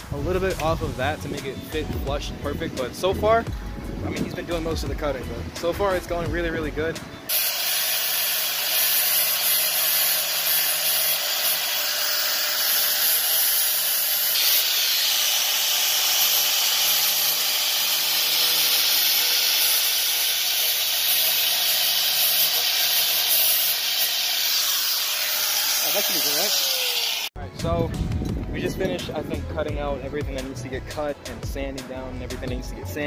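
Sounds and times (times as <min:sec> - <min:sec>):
angle grinder cutting sheet metal: 0:07.3 - 0:27.3.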